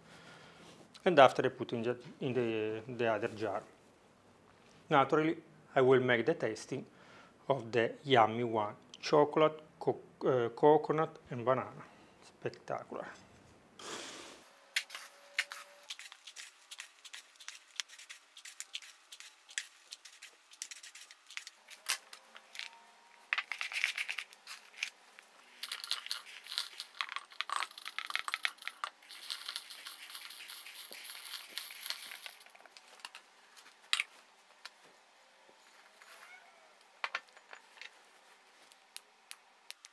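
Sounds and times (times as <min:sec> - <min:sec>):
dry pieces rattling and rustling: 0:14.8 - 0:34.1.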